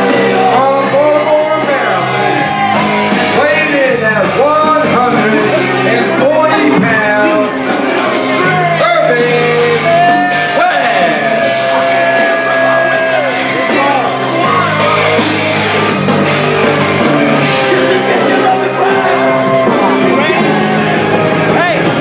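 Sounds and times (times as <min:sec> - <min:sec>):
rock music with singing: 0:00.0 - 0:22.0.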